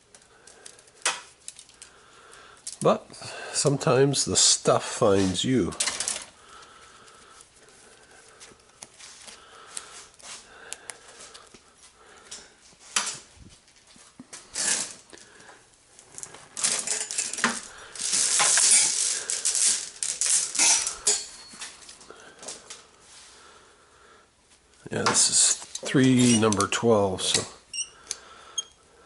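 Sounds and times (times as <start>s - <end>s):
metal cable clinking and rattling: 0.1s - 1.9s, 16.0s - 22.8s.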